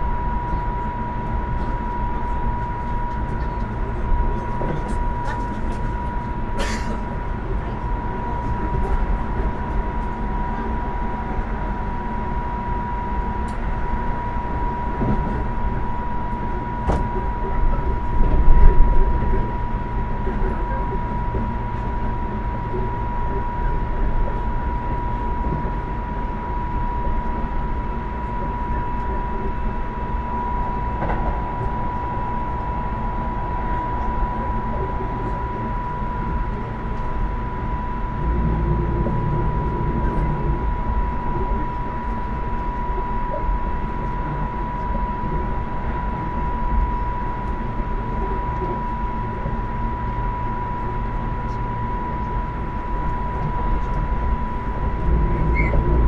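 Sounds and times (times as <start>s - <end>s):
train wheels rumbling on rail: 0.0s - 56.0s
constant high tone: 19.9s - 56.0s.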